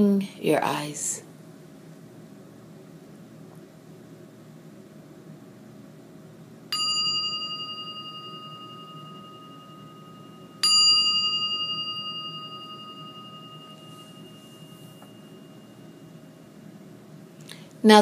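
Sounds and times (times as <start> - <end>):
meditation bell ringing: 6.7 - 17.2.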